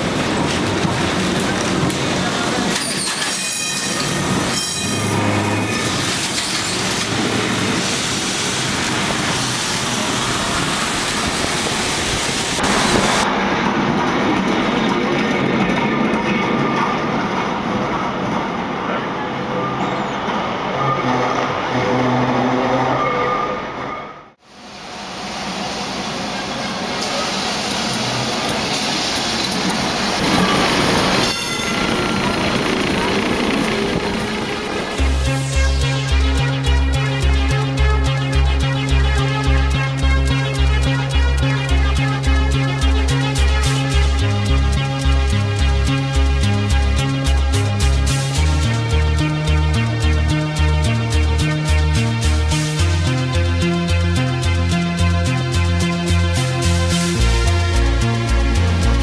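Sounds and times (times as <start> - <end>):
tram wheels rumbling and rattling: 0.0 - 24.0, 24.8 - 59.0
high whine: 29.4 - 59.0.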